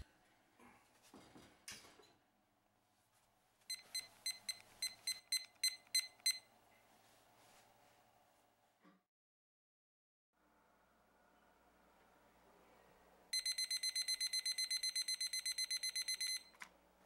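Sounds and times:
thermometer beeping: 3.7 - 6.5, 13.3 - 16.6.

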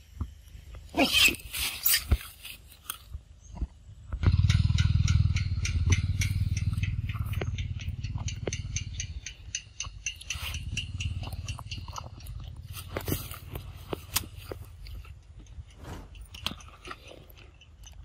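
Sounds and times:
monkeys chewing fruit: 9.2 - 18.0.

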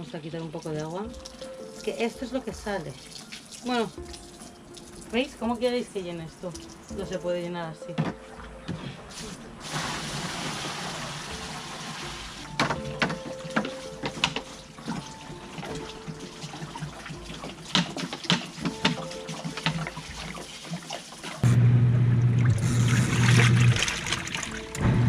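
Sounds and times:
water pouring into a tub: 0.0 - 5.3, 9.1 - 21.5, 22.2 - 24.8
washing machine motor hum: 6.9 - 25.0.

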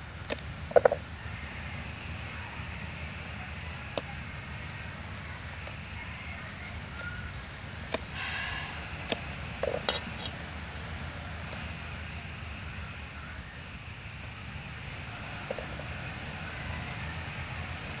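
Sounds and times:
clinks in steel bowl: 9.6 - 10.5.

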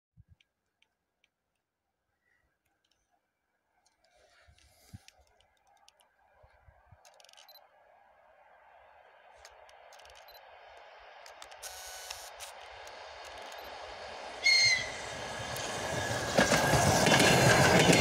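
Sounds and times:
approaching train rumble: 7.5 - 18.0
light clicks: 9.4 - 13.7.

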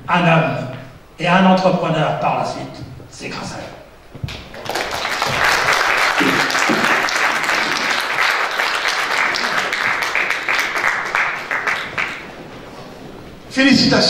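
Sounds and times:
audience applause: 4.3 - 12.6.

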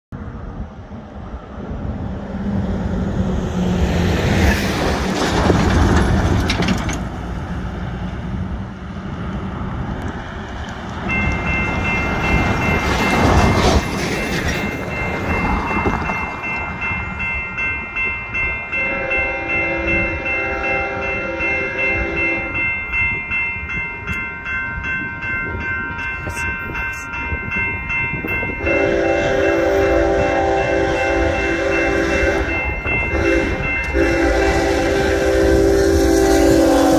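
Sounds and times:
wind: 0.1 - 36.9
passing road traffic: 0.2 - 36.9
crossing warning bell ringing: 11.0 - 36.9
train horn blast: 18.8 - 22.6, 28.6 - 36.9.

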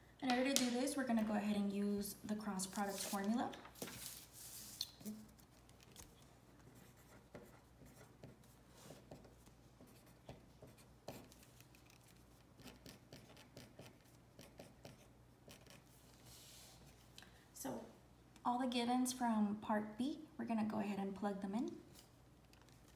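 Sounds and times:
pen scratching while writing: 6.7 - 15.9.

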